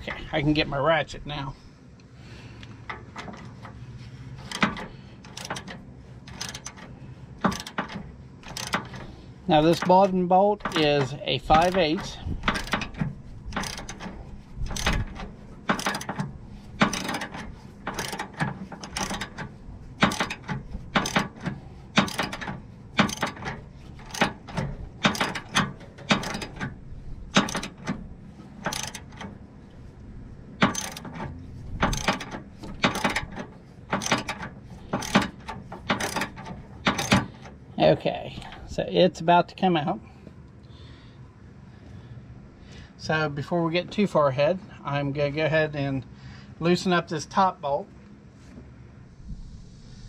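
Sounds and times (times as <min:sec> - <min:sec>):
socket ratchet clicking: 0:04.4 - 0:09.1, 0:10.6 - 0:29.4, 0:30.6 - 0:37.6.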